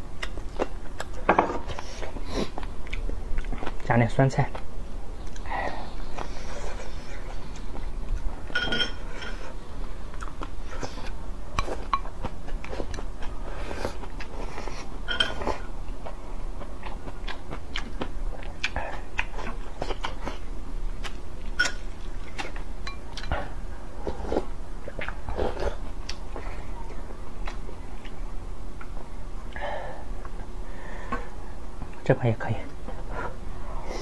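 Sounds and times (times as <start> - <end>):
wet chewing and smacking: 0.2 - 3.9, 4.5 - 8.5, 10.1 - 28.2.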